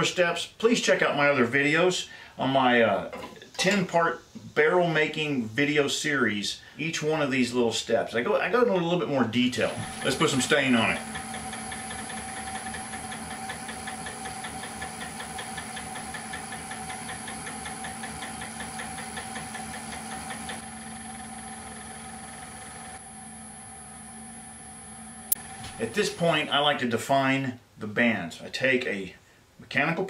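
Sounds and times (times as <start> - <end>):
wood lathe motor hum: 9.6 - 26.2
fine even ticking: 9.9 - 22.2.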